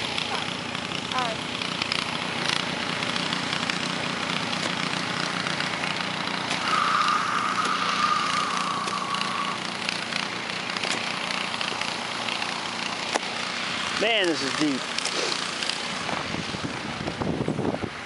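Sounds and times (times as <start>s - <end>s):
small engine running: 0.0s - 18.0s
high-pitched whine: 2.8s - 17.1s.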